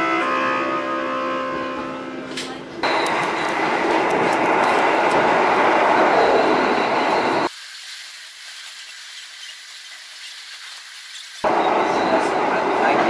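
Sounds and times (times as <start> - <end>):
train rushing on rails: 2.0 - 8.4, 10.1 - 13.0.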